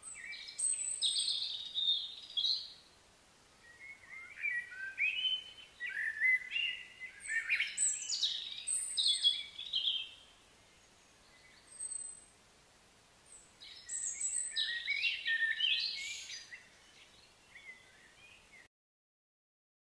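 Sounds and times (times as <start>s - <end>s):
songbirds chirping: 0.0s - 18.7s.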